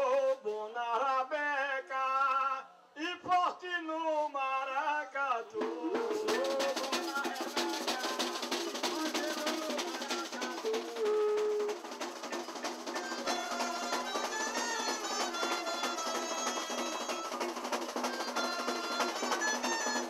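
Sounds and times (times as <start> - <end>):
music with busy percussion: 5.6 - 20.0.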